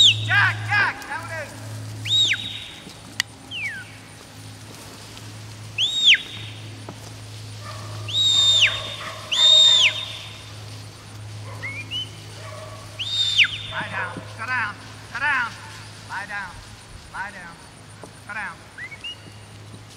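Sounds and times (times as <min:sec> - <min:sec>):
high whistles: 0:00.0 - 0:00.9, 0:02.0 - 0:04.0, 0:05.7 - 0:06.8, 0:08.0 - 0:10.6, 0:11.5 - 0:12.2, 0:12.9 - 0:14.2, 0:18.7 - 0:19.5.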